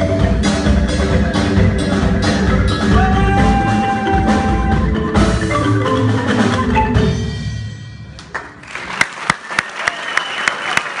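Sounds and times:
marimba notes ringing: 0.0 - 8.1.

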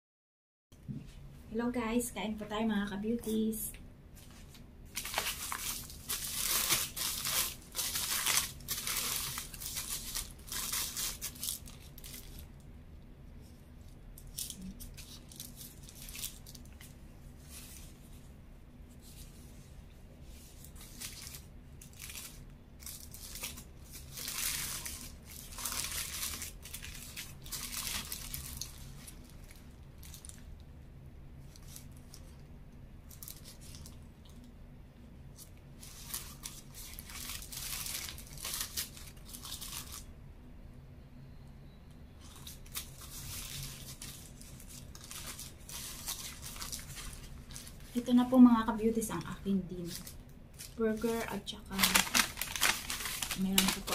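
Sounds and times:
paper wrapper crinkling and tearing: 4.2 - 12.6, 13.4 - 18.2, 20.3 - 30.5, 31.4 - 32.4, 33.0 - 34.5, 35.3 - 40.1, 42.2 - 53.9.

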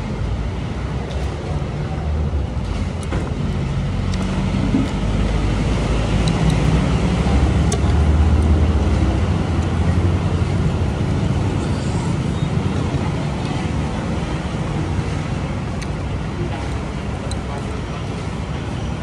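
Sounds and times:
road traffic rumble: 0.0 - 19.0
vehicle engine passing: 2.0 - 15.7.

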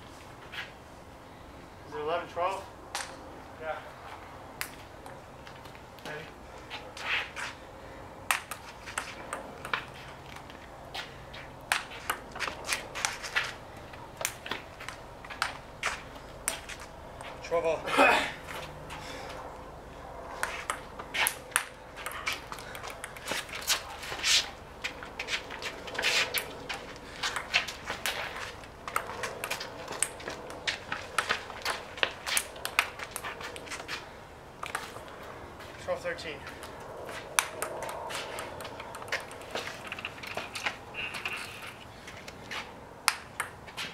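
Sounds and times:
ping-pong ball clicks: 8.3 - 10.5, 20.4 - 23.6, 27.2 - 28.2, 28.9 - 33.2, 34.6 - 35.0, 37.4 - 40.4, 43.0 - 43.6
sneakers scuffing on concrete: 8.6 - 17.4, 23.3 - 34.0
ping-pong ball clicking: 20.6 - 23.3, 43.1 - 43.6.

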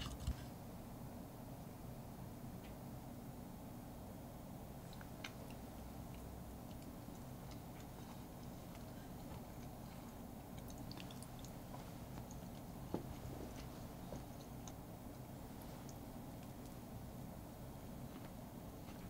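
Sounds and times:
low steady hum: 0.0 - 19.0
person chewing cake: 4.8 - 16.9.

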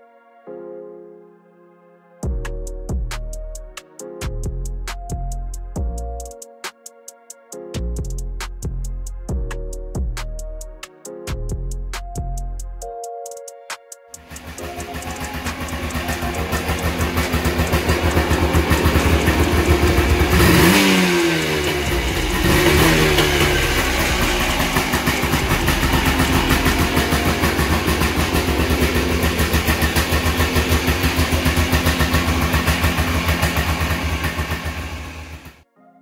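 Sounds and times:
engine revving: 14.2 - 35.6
two-stroke engine idling: 14.2 - 35.6.

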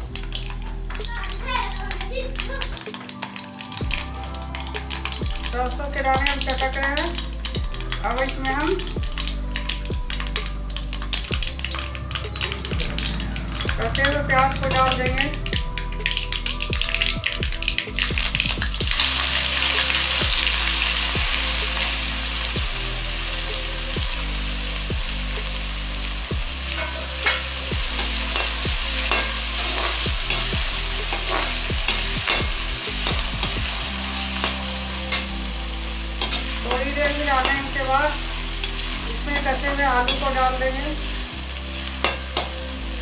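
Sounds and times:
onions sizzling in hot oil: 0.0 - 43.0
metal spatula scraping pan: 26.7 - 33.6, 36.2 - 40.7.

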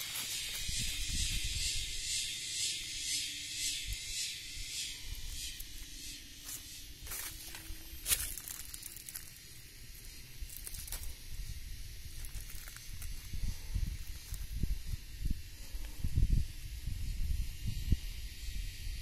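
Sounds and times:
wind buffeting microphone: 0.0 - 2.1, 11.0 - 19.0
steady high hiss: 0.0 - 19.0.

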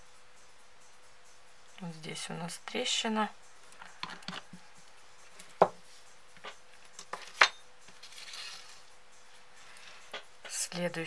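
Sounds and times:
glass bottle and metal tool clicks: 7.1 - 7.6.

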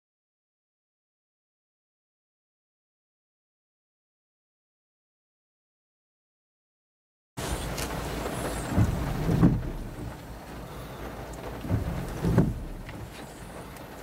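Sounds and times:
car cabin rumble: 7.4 - 14.0
soft muffled thumps: 7.8 - 10.3, 11.4 - 13.3.

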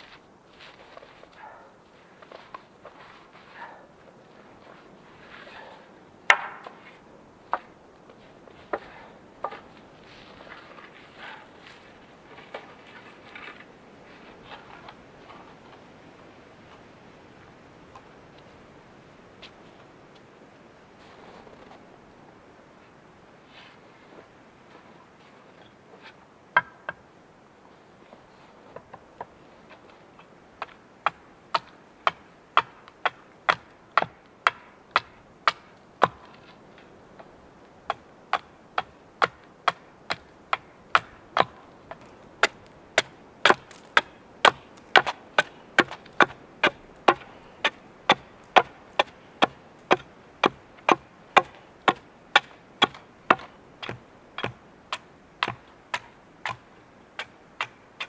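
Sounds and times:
axe chopping wood: 6.3 - 6.8, 30.6 - 36.4, 37.9 - 56.6.

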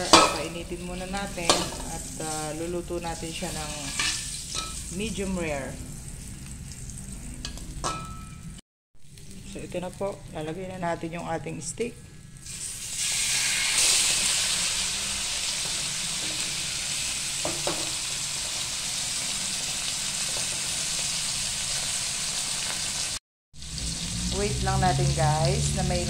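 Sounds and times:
steak sizzling in a frying pan: 12.4 - 25.7.

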